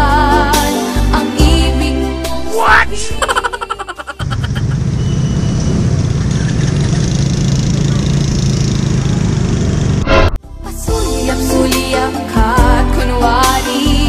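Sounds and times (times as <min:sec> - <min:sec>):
scooter engine and wind rushing: 0:04.2 - 0:10.1.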